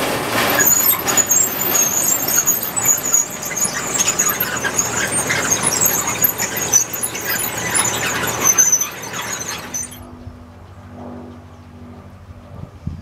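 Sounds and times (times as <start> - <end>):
machinery squealing: 0.4 - 10.0.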